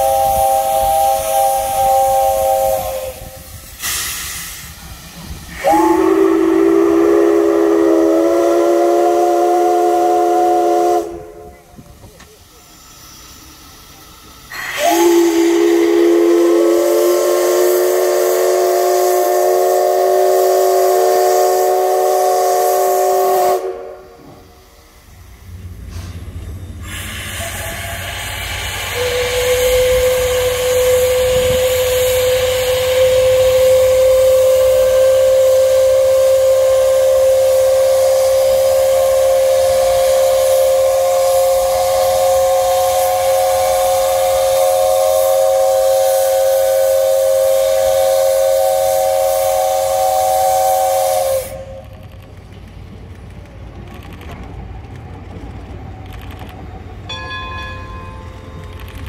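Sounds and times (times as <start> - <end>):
steam whistle blast: 0.0 - 4.8, 5.4 - 11.7, 14.5 - 24.6, 26.8 - 51.9
steam hissing: 0.0 - 53.2.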